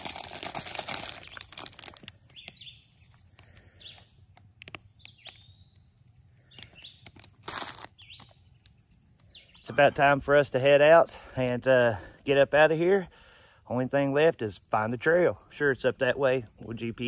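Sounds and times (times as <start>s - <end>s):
crinkly rustling: 0.0s - 2.6s, 6.7s - 8.3s
bird chirps and calls: 2.2s - 4.2s, 4.8s - 7.1s, 9.2s - 9.8s.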